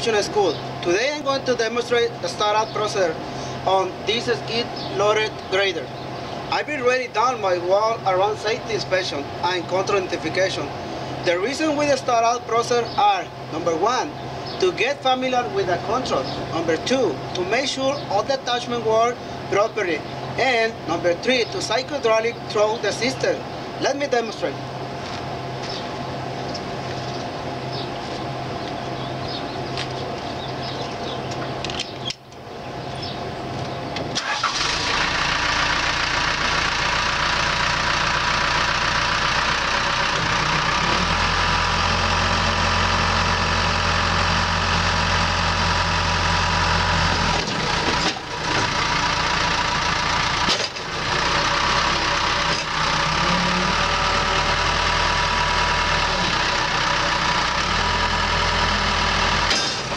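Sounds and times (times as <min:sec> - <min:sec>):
diesel engine starting and running: 0:00.0 - 0:59.9.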